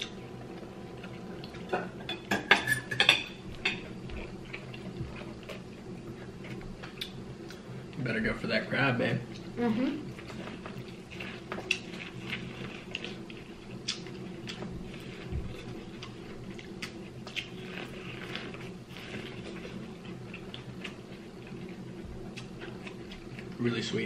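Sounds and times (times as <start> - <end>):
steady low hum: 0.0 - 24.0
people chewing corn on the cob: 3.5 - 8.0, 9.3 - 23.9.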